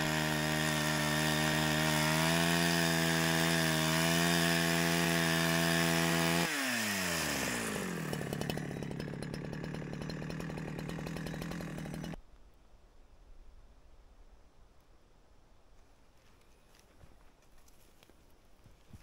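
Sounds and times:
chainsaw cutting log: 0.0 - 12.2.

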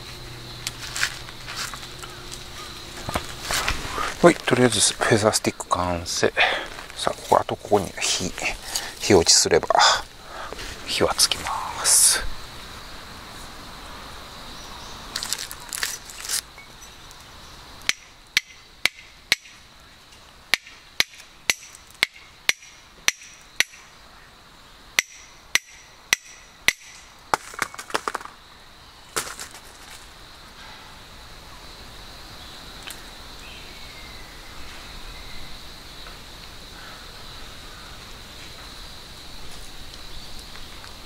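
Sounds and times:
fire steel scraping: 0.0 - 5.2.

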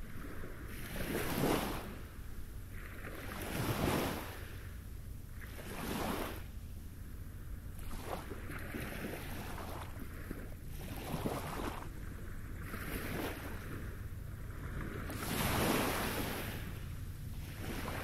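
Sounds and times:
waves washing on a pebble beach: 2.8 - 4.6, 14.6 - 16.8
steady low rumble: 6.4 - 18.0.

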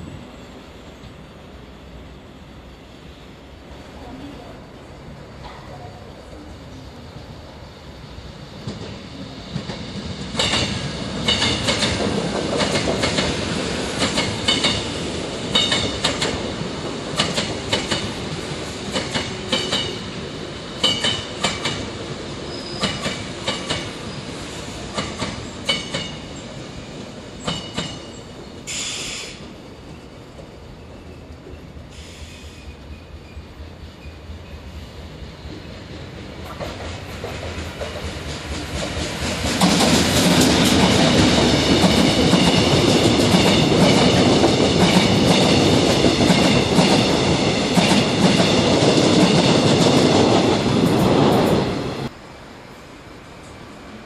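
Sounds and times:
train wheels clacking over rail joints: 8.6 - 14.9, 15.5 - 16.5, 17.1 - 18.2, 18.9 - 20.0, 20.8 - 21.9, 22.7 - 24.0, 24.9 - 26.2, 27.4 - 28.1, 36.4 - 51.6
brief hiss: 28.7 - 29.4, 31.9 - 32.8.

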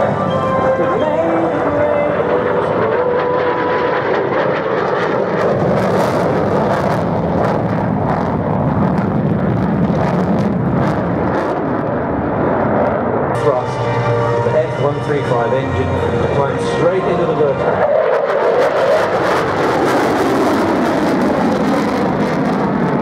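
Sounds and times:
jet roar with crackle: 3.0 - 13.4, 17.7 - 23.0.

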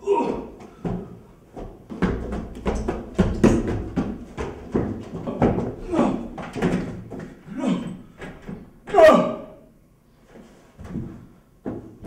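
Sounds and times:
man crying out and grunting: 0.0 - 0.6, 5.2 - 6.4, 7.5 - 8.0, 8.9 - 9.7.

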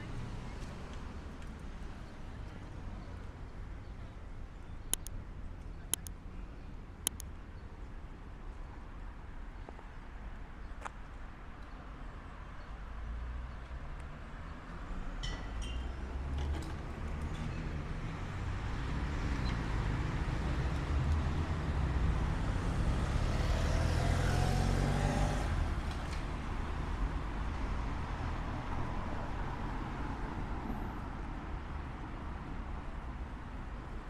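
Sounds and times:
vehicle engine passing by: 17.1 - 26.2.

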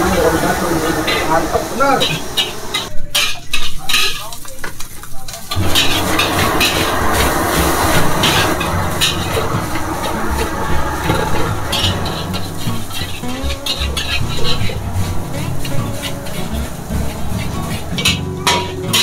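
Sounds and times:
frying sizzle: 0.0 - 19.0
metal spatula scraping a wok: 5.5 - 19.0.

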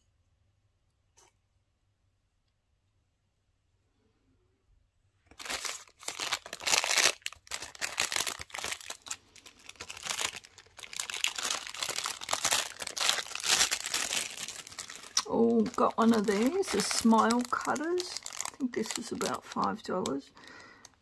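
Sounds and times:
plastic packaging crinkling: 5.3 - 21.0.

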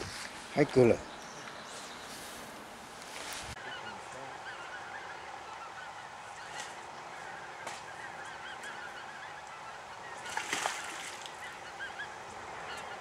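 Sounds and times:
geese honking: 3.6 - 13.0.

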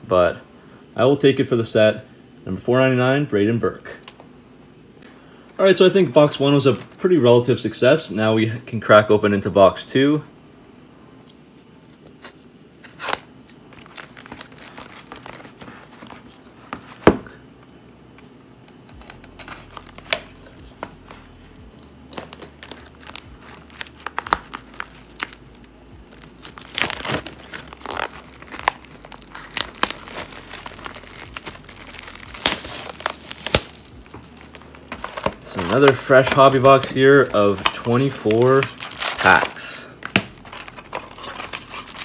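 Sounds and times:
plastic shrink wrap crinkling: 12.9 - 17.4, 18.9 - 21.4, 22.1 - 42.0.

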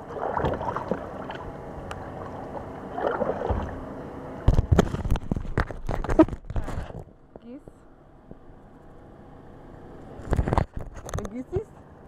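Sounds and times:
water washing: 0.0 - 3.9.

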